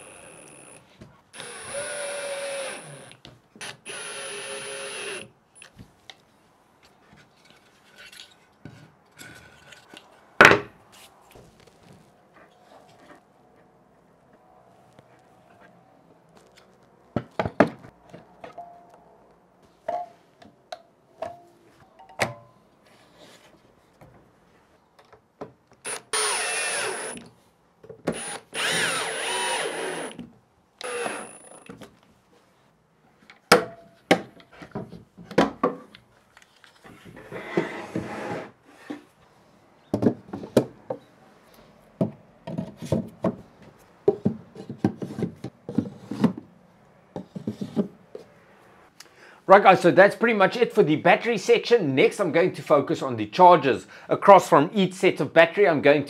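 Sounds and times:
cordless drill whining: 0:00.0 - 0:00.8, 0:01.4 - 0:05.7, 0:25.9 - 0:27.2, 0:28.1 - 0:30.2, 0:30.8 - 0:31.7.

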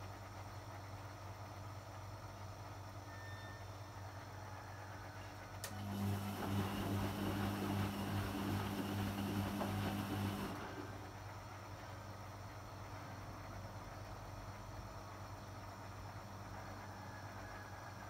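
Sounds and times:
washing machine hum: 0:05.1 - 0:16.9.

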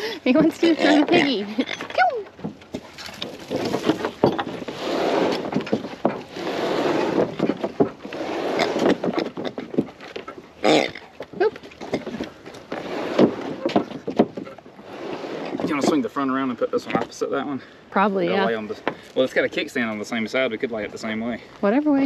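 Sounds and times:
wood creaking: 0:00.0 - 0:17.5
scraping on wooden deck: 0:02.3 - 0:17.3.

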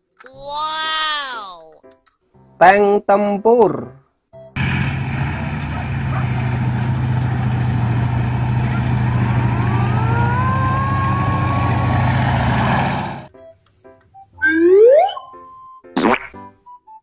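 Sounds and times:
diesel engine rumble: 0:04.6 - 0:13.3
high whine: 0:04.6 - 0:13.3
tank tracks running: 0:04.6 - 0:13.3.

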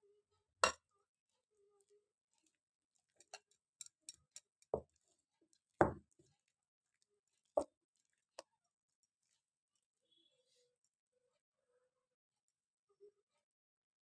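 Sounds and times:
bangles clinking against bowl: 0:03.2 - 0:04.9.

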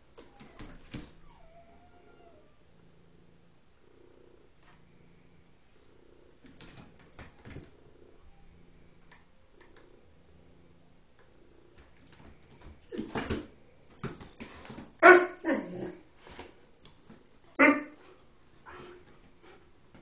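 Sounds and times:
cat purring: 0:02.3 - 0:12.5.

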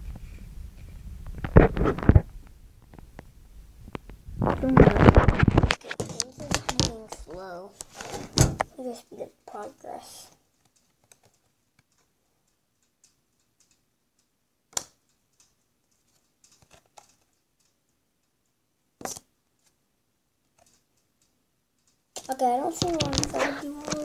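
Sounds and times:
faint handling clicks and taps: 0:05.6 - 0:08.7, 0:20.5 - 0:24.0
sharp knocks: 0:08.1 - 0:08.7.

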